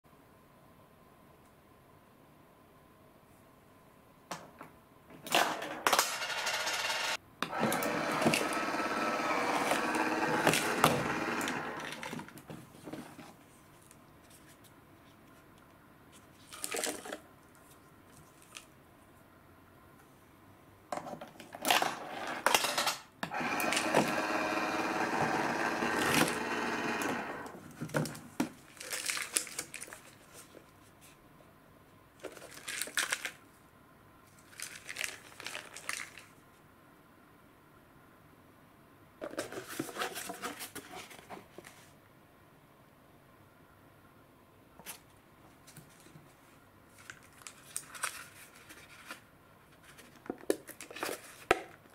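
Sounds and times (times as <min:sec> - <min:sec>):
coin going into slot: 0:05.4 - 0:07.2
vending machine motor whirring: 0:06.2 - 0:12.2, 0:23.3 - 0:27.6.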